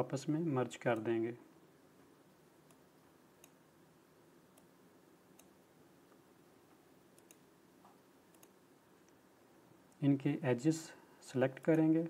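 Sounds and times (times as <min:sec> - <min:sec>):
computer mouse clicks: 0:03.4 - 0:03.6, 0:05.3 - 0:05.6, 0:07.2 - 0:07.4, 0:08.3 - 0:09.2.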